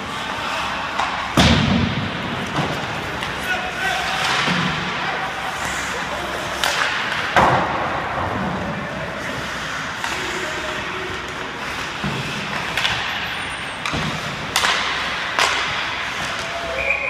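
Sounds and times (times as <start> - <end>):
hockey sticks and puck cracking: 0.0 - 17.0
skates hissing on ice: 5.2 - 7.2, 9.0 - 16.8.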